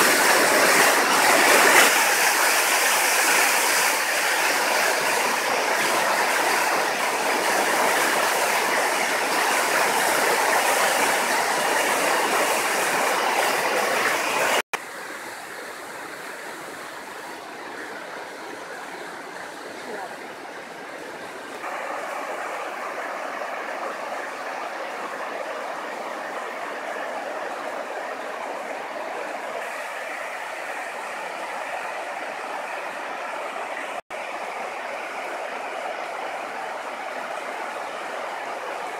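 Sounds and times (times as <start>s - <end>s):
water pouring over a weir: 0.0s - 14.6s
floodwater rushing: 0.0s - 38.9s.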